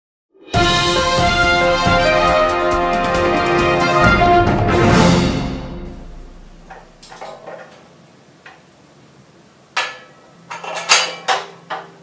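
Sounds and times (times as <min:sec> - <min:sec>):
metal parts clinking: 0:09.8 - 0:11.8.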